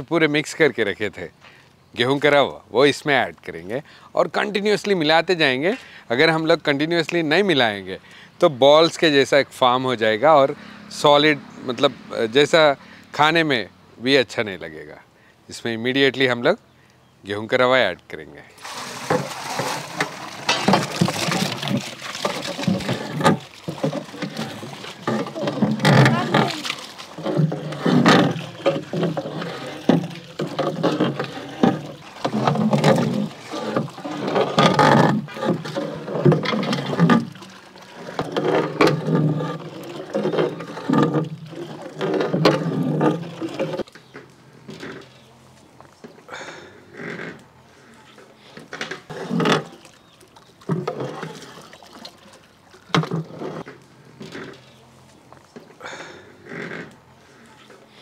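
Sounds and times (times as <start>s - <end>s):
ladle stirring thick mash: 18.6s - 43.9s
liquid splashing and sloshing: 18.6s - 44.0s, 49.0s - 53.7s.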